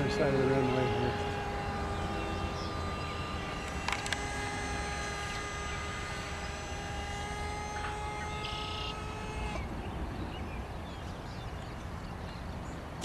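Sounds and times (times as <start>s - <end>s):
model jet motor whining: 0.0s - 10.0s.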